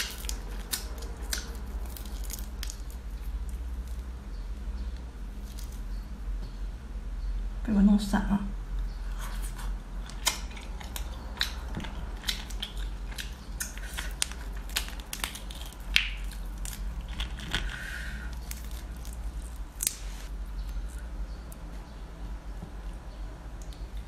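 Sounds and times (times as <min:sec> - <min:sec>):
crayfish shells cracking: 0:00.0 - 0:04.1, 0:05.4 - 0:06.0, 0:10.1 - 0:21.6.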